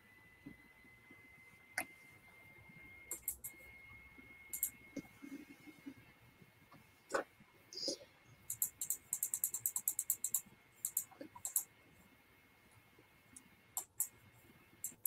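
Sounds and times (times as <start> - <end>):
faint high whine: 0.0 - 15.0
computer mouse clicks: 3.1 - 3.6, 4.5 - 5.1, 7.8 - 11.7, 13.4 - 14.2, 14.8 - 15.0.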